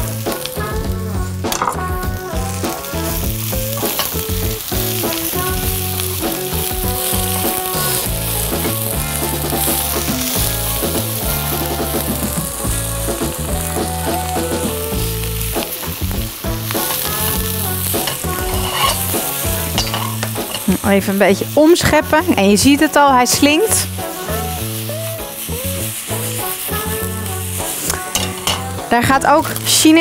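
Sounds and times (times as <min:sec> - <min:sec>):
background music with bass line: 0:00.0 - 0:30.0
vegetables sizzling in oil: 0:00.0 - 0:30.0
spatula stirring in wok: 0:15.6 - 0:21.0.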